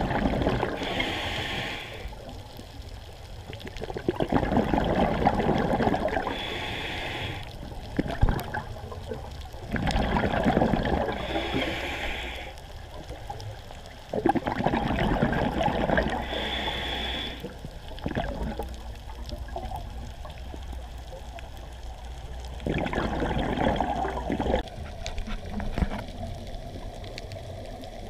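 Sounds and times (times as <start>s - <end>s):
exhaled bubbles rushing: 0.0s - 1.0s, 3.5s - 6.4s, 7.9s - 11.6s, 14.1s - 16.4s, 17.9s - 20.2s, 22.5s - 28.0s
regulator hiss: 0.7s - 2.2s, 6.3s - 7.6s, 11.2s - 12.6s, 16.2s - 17.5s.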